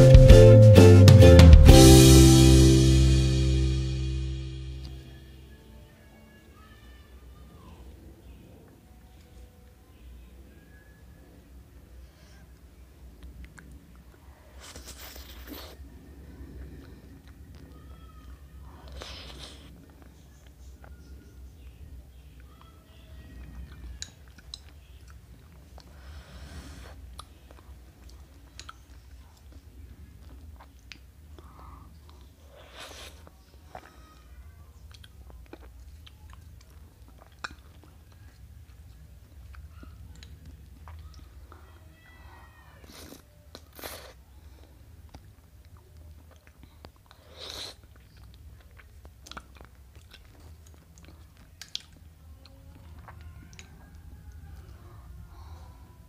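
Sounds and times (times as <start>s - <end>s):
quiet chewing: 8.2s - 56.0s.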